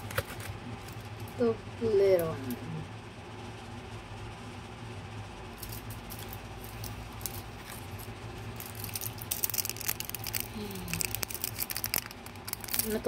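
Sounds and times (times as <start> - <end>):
low steady hum: 0.0 - 13.0
wrapper crinkling and tearing: 5.6 - 13.0.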